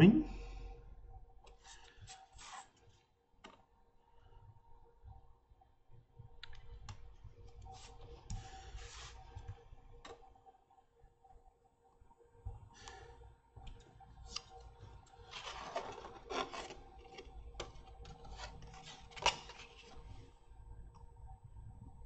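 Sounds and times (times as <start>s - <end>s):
hobby knife scraping plastic: 15.3s - 19.8s.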